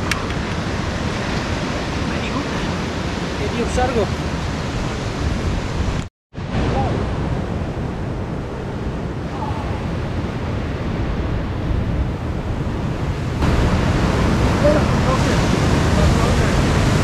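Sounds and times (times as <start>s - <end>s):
wind buffeting microphone: 0.0s - 17.0s
surf breaking against rocks: 12.6s - 17.0s.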